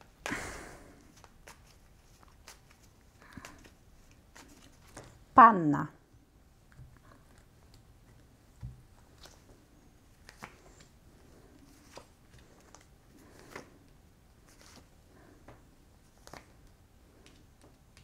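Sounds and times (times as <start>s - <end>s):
cards clicking softly: 10.1s - 10.9s, 15.5s - 18.0s.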